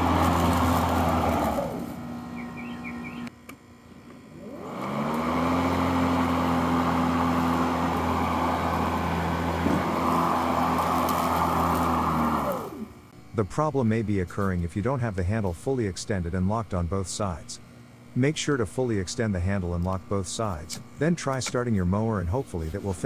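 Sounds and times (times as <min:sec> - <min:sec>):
electric lawn mower running: 0:00.0 - 0:16.5.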